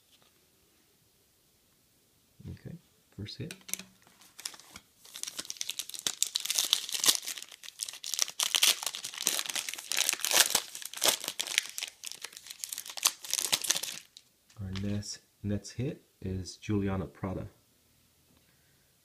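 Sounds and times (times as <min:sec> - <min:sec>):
foil wrapper crinkling and tearing: 0:03.7 - 0:15.0.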